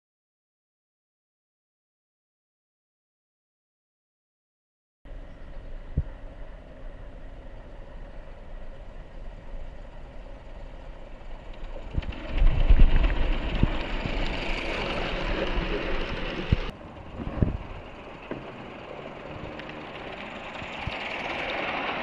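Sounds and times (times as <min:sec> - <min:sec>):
model train wheels rumbling: 0:05.7 - 0:22.0.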